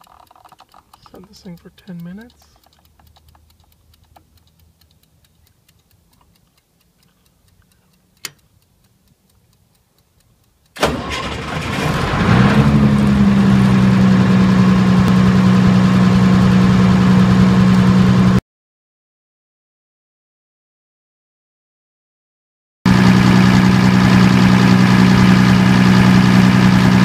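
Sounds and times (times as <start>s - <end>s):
kitchen timer ticking: 0.0s - 10.8s
timer click: 0.0s - 10.9s
diesel generator running: 10.8s - 18.4s, 22.9s - 27.0s.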